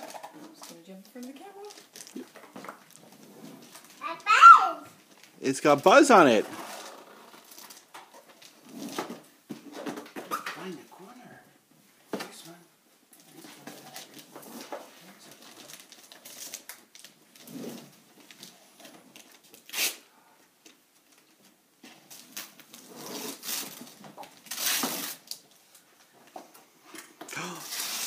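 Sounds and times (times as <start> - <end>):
wrapping paper tearing: 19.1 - 20.0, 22.1 - 25.4, 27.4 - 28.0.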